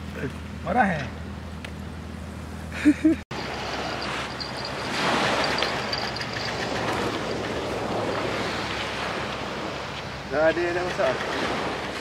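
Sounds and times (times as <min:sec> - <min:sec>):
wind and surf rushing: 0:03.3 - 0:12.0.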